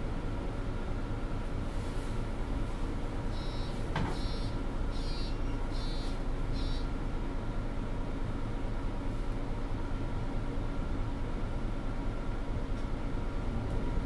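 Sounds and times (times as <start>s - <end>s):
bus engine rumbling: 0.0s - 14.0s
high electronic beeps: 3.4s - 6.8s.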